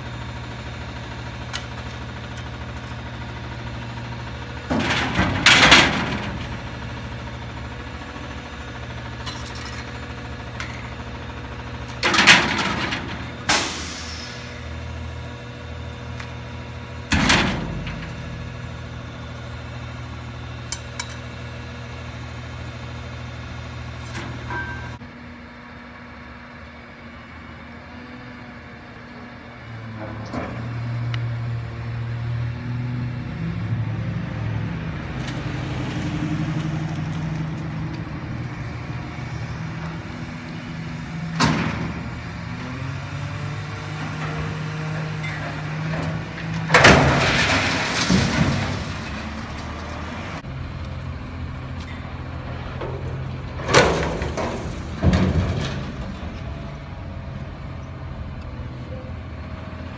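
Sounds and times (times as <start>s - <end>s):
garbage truck diesel engine revving: 0.0s - 25.1s, 27.7s - 59.9s
junk crashing into hopper: 1.4s - 20.3s, 38.1s - 50.5s, 52.0s - 57.2s.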